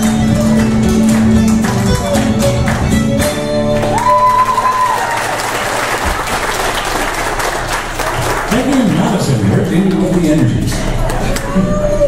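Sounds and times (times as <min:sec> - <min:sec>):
fiddle and guitar tune: 0:00.0 - 0:05.0
audience applauding: 0:00.0 - 0:11.5.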